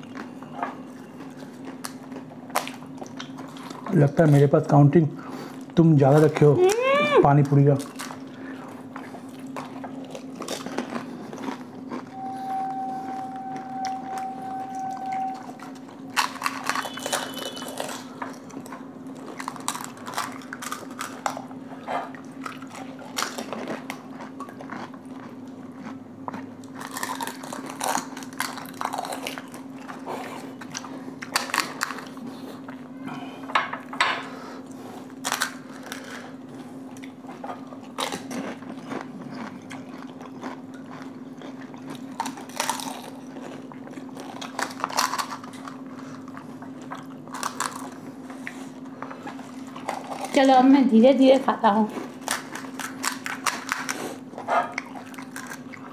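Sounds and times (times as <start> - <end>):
steady low hum: 7.8 - 55.9
faint steady tone: 12.1 - 15.6
crisp shells crunching: 16.1 - 21.4, 26.6 - 30.0, 37.9 - 46.4, 47.2 - 48.1, 52.0 - 54.1.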